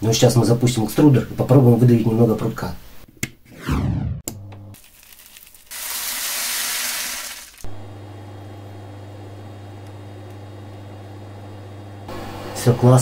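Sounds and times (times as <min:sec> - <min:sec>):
filament extruder humming: 0:05.8 - 0:13.0.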